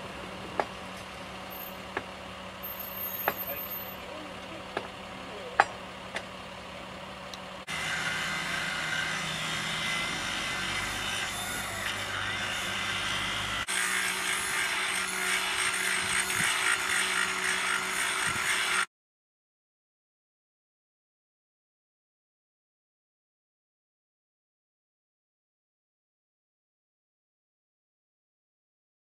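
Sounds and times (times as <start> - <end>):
rail grinder grinding metal: 0.0 - 18.9.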